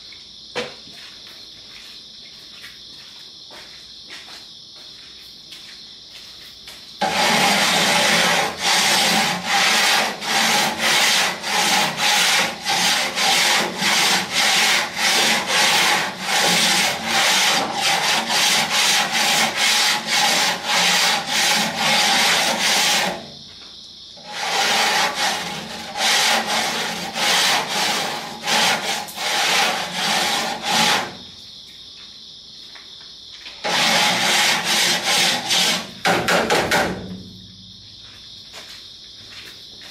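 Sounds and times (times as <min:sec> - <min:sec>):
scrubbing metal grates: 0:07.0 - 0:23.3, 0:24.2 - 0:31.2, 0:33.6 - 0:36.8.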